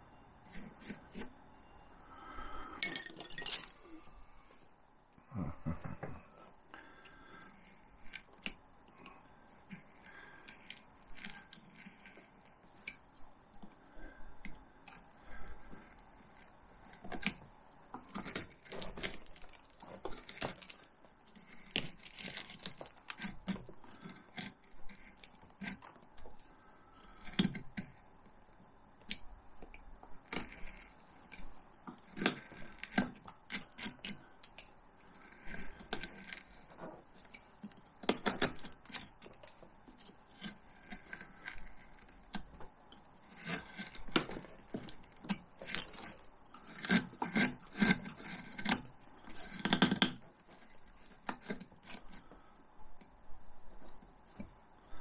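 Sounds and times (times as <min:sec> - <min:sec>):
carving tools cutting bark: 0:00.4 - 0:01.4, 0:18.0 - 0:26.3, 0:30.2 - 0:34.5, 0:35.1 - 0:52.5.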